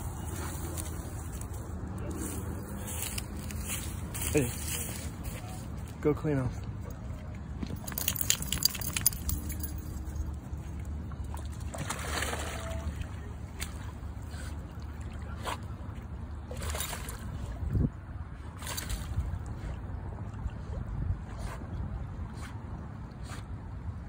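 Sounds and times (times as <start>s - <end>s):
water splashing and sloshing: 0.0s - 24.0s
metallic collar jingle: 7.7s - 10.4s.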